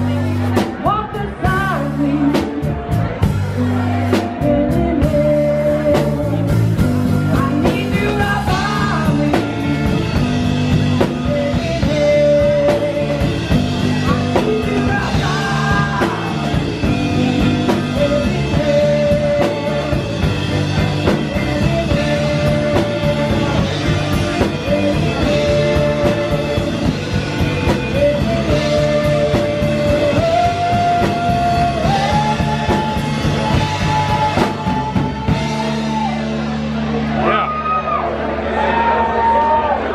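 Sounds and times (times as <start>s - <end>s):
woman singing: 0.0s - 2.9s, 4.1s - 36.2s
drum kit: 0.0s - 37.9s
electric bass: 0.0s - 39.9s
electric guitar: 0.0s - 39.9s.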